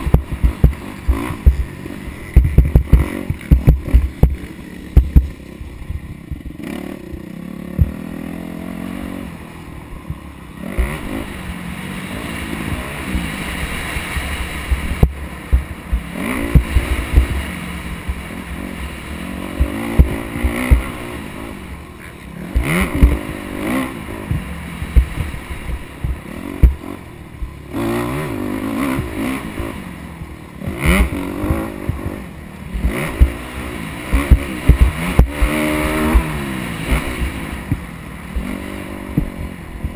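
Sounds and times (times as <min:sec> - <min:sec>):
thumps and clatter: 0:00.0 - 0:01.7, 0:02.4 - 0:04.4, 0:05.0 - 0:07.9
dirt bike engine revving: 0:00.0 - 0:39.9.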